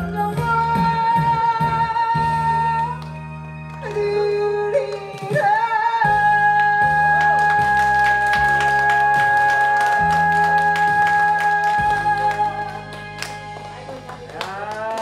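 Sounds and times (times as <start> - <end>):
woman singing into microphone: 0.0 - 3.1, 3.8 - 12.8
karaoke backing track: 0.0 - 15.0.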